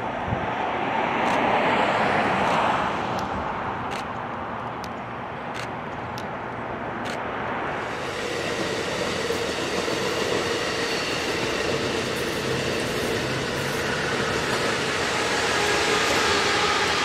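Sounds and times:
sharp clicks: 0:01.2 - 0:01.4, 0:03.9 - 0:04.2, 0:07.0 - 0:07.2
train wheels rushing on rails: 0:07.1 - 0:17.0.

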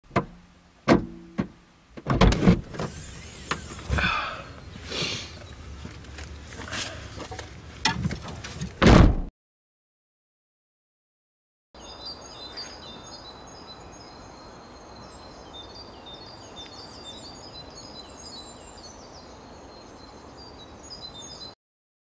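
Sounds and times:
knocks clicks and rustling: 0:00.1 - 0:04.0, 0:05.4 - 0:09.0
car boot slammed shut: 0:00.1 - 0:04.1, 0:08.8 - 0:09.3.

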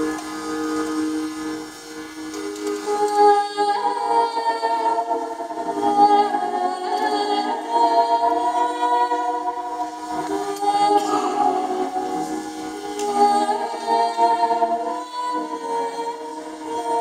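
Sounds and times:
hurdy-gurdy drone and melody: 0:00.0 - 0:03.2.

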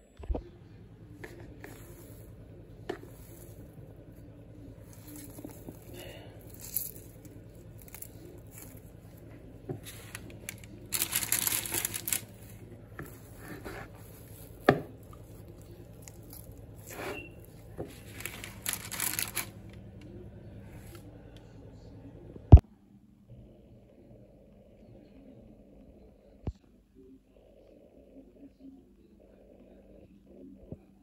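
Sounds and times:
baking paper crinkling: 0:02.9 - 0:19.9.

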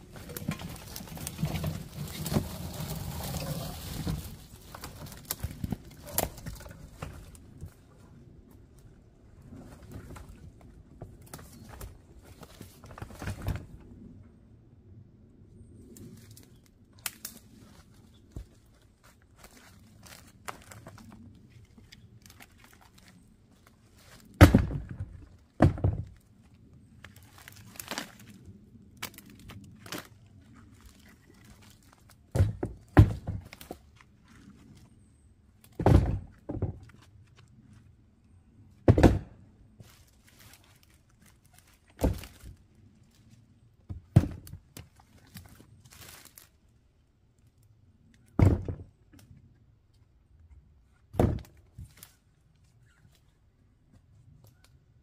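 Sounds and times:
logs thunking into plastic wheelbarrow: 0:00.1 - 0:07.4, 0:24.1 - 0:26.2, 0:32.3 - 0:33.9, 0:35.6 - 0:37.1, 0:38.8 - 0:39.4, 0:41.9 - 0:42.6, 0:43.9 - 0:45.6, 0:48.4 - 0:48.9, 0:51.1 - 0:52.0.

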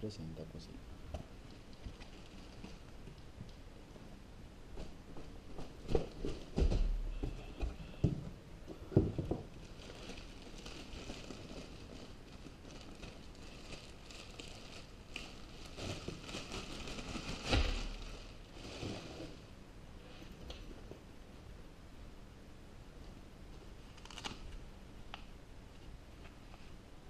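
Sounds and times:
plastic wrapping crinkling: 0:01.4 - 0:03.6, 0:08.9 - 0:19.5, 0:23.8 - 0:24.6.

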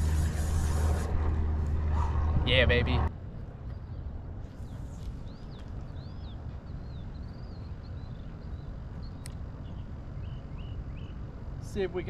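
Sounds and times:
wind buffeting microphone: 0:00.0 - 0:11.6
bird chirping: 0:03.3 - 0:11.5.

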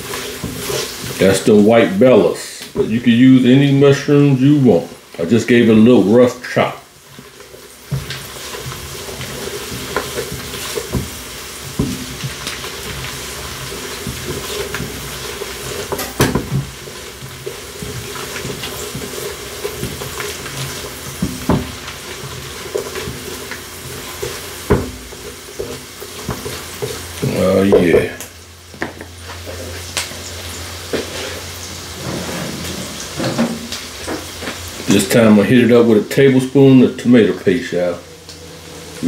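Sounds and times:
spatula scraping and tapping pan: 0:00.0 - 0:01.4, 0:07.0 - 0:30.2
onions sizzling in butter: 0:00.0 - 0:39.0.

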